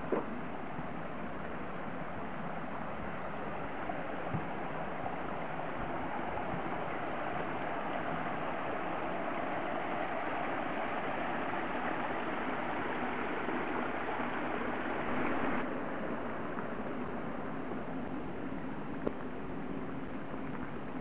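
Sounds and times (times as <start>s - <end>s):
water running over rocks: 0.0s - 21.0s.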